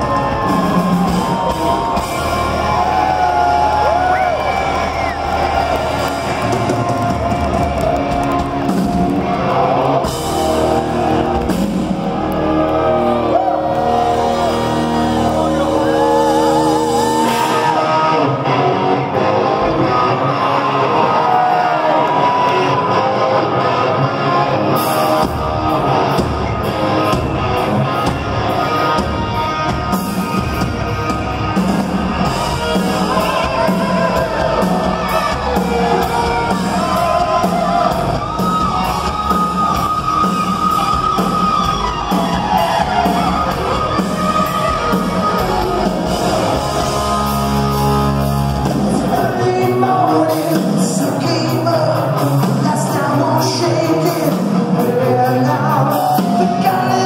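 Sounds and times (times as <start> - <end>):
drums: 0.0 - 57.0
electric guitars: 0.0 - 57.0
live rock band: 0.0 - 57.0
person shouting singing: 32.6 - 40.0, 48.9 - 57.0.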